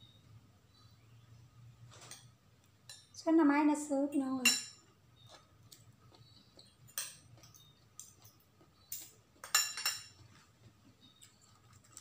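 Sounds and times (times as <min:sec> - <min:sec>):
cutlery clinking on ceramic bowls: 0:02.0 - 0:03.1, 0:04.4 - 0:04.9, 0:06.6 - 0:10.4.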